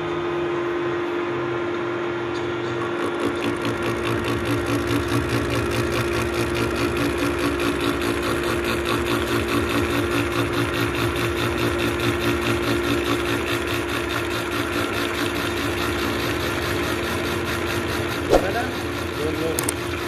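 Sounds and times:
milling machine humming and pulsing: 0.0 - 20.0.

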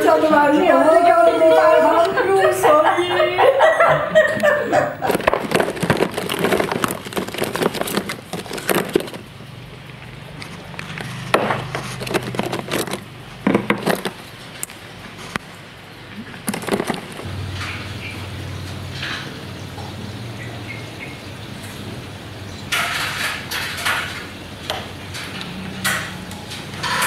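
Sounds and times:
paint tube crackling and clicking: 5.0 - 15.5.

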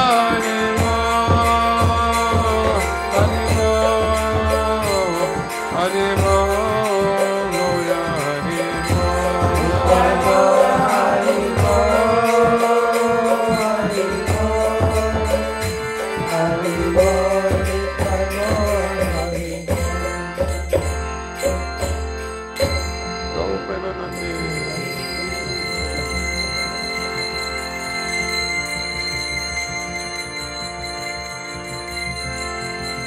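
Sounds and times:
drum beating: 0.3 - 5.3, 7.8 - 12.7, 13.4 - 23.0
held drone: 7.2 - 21.2
voices chanting: 9.0 - 13.4.

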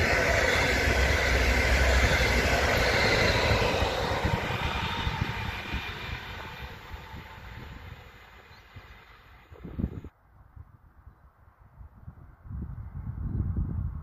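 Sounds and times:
train passing with wheel whine: 0.0 - 10.1.

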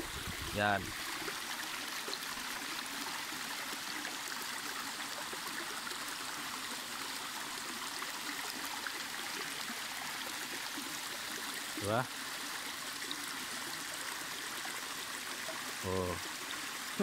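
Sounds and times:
creek water running over rocks: 0.0 - 17.0.

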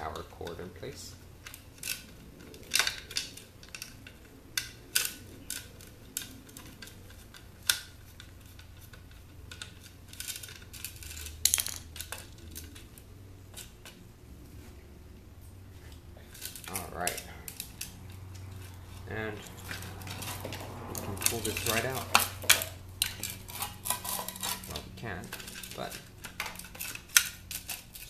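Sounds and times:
small parts clicking: 1.4 - 14.0, 15.9 - 28.0
screwdriver clicking and scraping: 16.3 - 28.0.

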